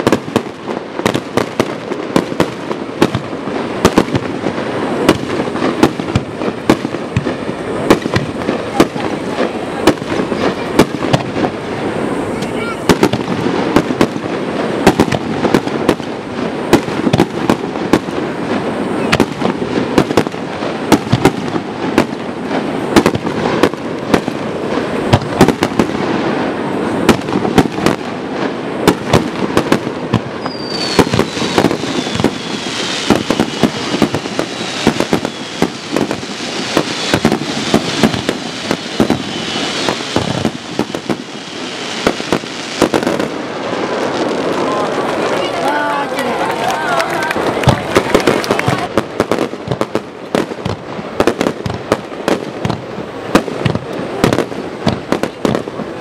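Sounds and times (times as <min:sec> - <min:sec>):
crackling hiss: 0:00.0 - 0:56.0
fireworks bursting with sharp bangs: 0:00.0 - 0:56.0
high whistle falling in pitch: 0:30.4 - 0:33.7, 0:34.4 - 0:36.0, 0:38.9 - 0:40.1.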